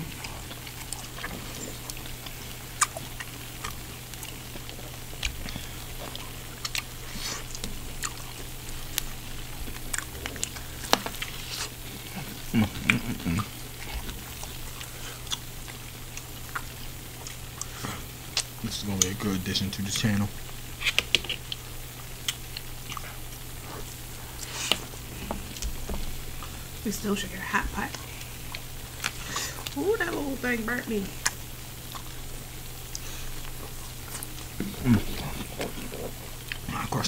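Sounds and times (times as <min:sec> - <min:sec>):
chewing and wet mouth clicks: 0:00.0 - 0:19.3, 0:20.0 - 0:26.6, 0:27.9 - 0:29.8, 0:31.2 - 0:37.0
person humming: 0:12.1 - 0:13.6, 0:34.6 - 0:35.4.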